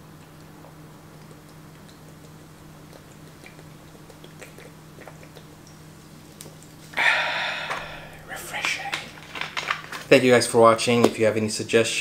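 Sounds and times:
person gulping water: 6.9s - 9.5s.

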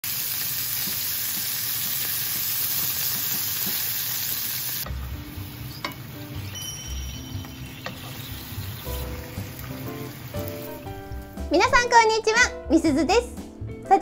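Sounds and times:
food sizzling in oil: 0.0s - 11.9s
soft music: 4.8s - 14.0s.

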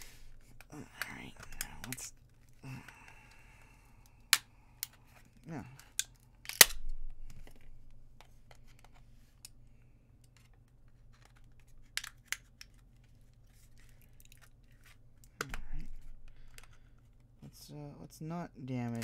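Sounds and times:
plastic casing cracking: 0.3s - 9.0s, 10.2s - 17.3s
small clicks and snaps: 10.2s - 14.5s.

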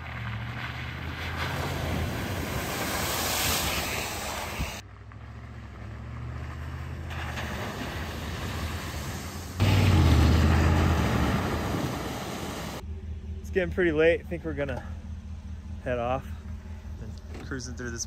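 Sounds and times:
truck engine driving through mud: 0.0s - 12.8s
water splashing: 0.4s - 4.8s, 7.0s - 12.8s.

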